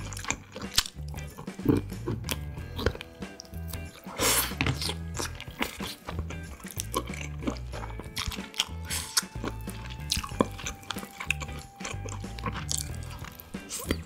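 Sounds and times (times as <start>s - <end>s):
background music with bass line: 0.0s - 14.0s
wet chewing sounds: 0.0s - 14.0s.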